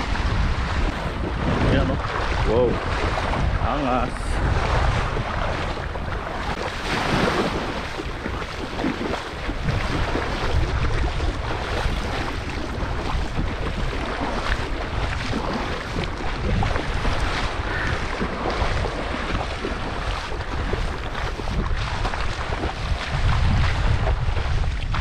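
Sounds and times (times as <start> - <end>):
water splashing around boat: 0.0 - 25.0
wind buffeting microphone: 0.0 - 25.0.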